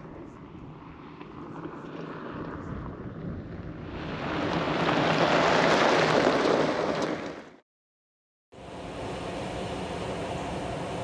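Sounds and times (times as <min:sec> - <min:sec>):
tyres on gravel road: 0:00.0 - 0:07.6
vehicle engine hum: 0:08.6 - 0:11.0.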